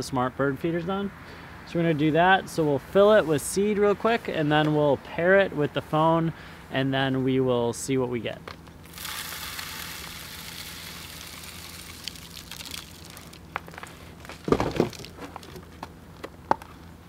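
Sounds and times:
birdseed pouring: 8.8s - 13.8s.

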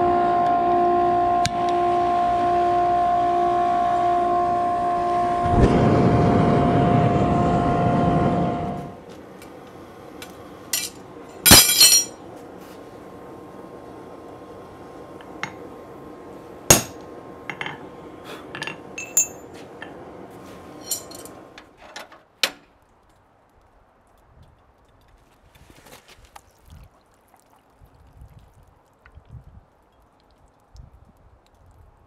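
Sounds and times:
steady background hiss: 8.6s - 22.8s
light metal clinks: 19.0s - 19.5s, 20.8s - 21.3s.

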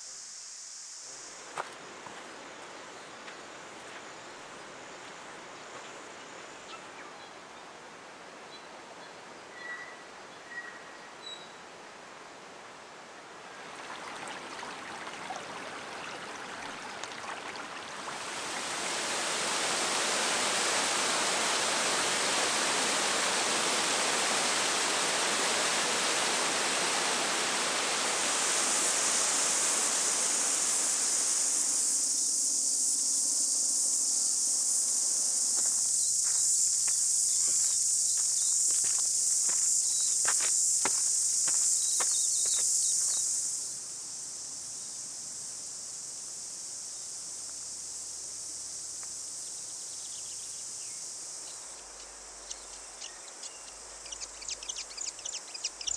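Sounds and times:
cicadas shrilling: 0.0s - 7.6s, 13.7s - 55.9s
water rushing: 13.3s - 33.2s.

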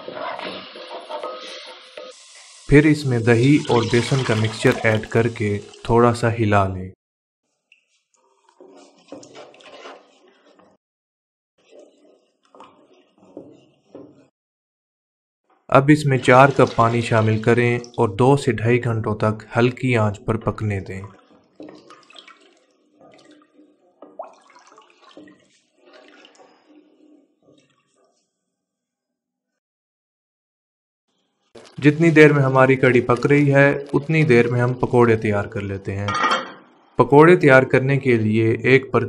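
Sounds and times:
spoon stirring liquid in pot: 0.0s - 2.6s, 7.7s - 10.8s, 11.6s - 14.3s, 20.4s - 28.3s
batter stirred in metal pot: 0.0s - 5.6s, 7.5s - 10.8s, 11.6s - 14.3s.

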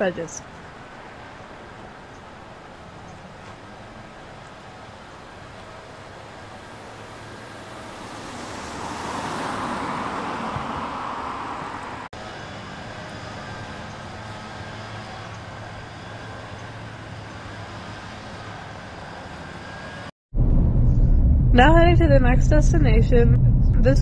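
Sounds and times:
steady traffic noise: 0.0s - 24.0s
car passing: 5.7s - 12.1s.

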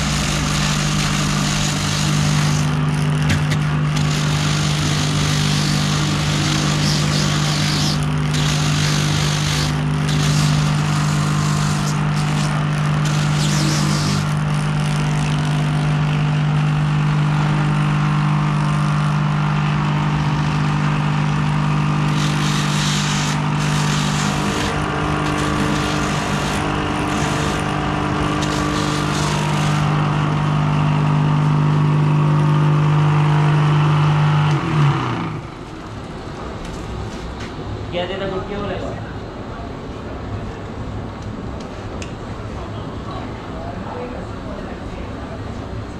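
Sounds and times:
buffer grinding rubber: 0.0s - 36.0s
low machine drone: 0.0s - 45.9s.

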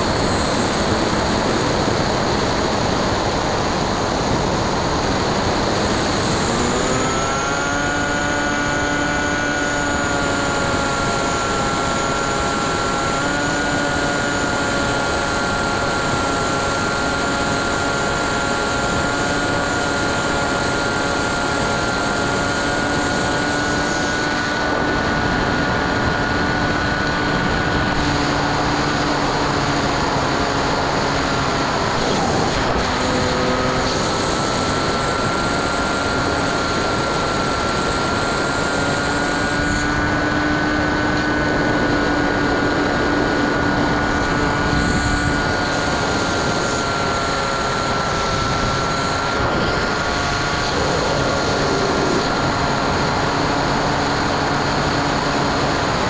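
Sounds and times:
electric motor whine: 0.0s - 56.0s
wind rushing: 48.3s - 53.9s.

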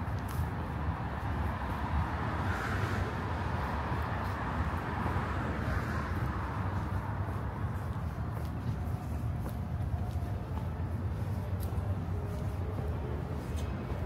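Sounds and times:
low rumble of passing vehicles: 0.0s - 14.0s
car passing by: 0.9s - 8.2s.

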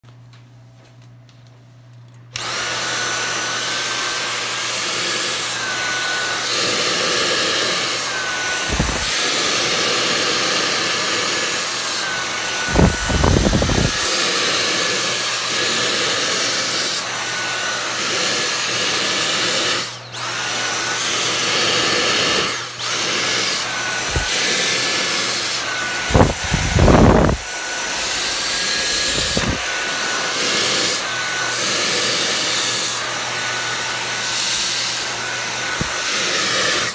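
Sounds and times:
cordless vacuum whine: 2.1s - 36.9s
vacuum head bumping: 8.2s - 9.2s, 12.6s - 14.0s, 23.7s - 30.0s, 35.6s - 36.2s.

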